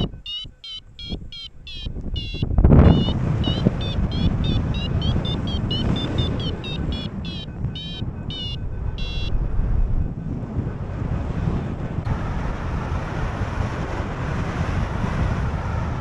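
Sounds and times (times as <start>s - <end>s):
high electronic beeps: 0.0s - 9.4s
wind buffeting microphone: 0.0s - 16.0s.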